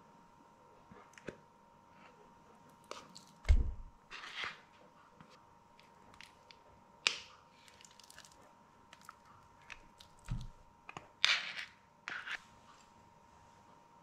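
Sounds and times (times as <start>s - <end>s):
soft thud: 3.5s - 3.9s.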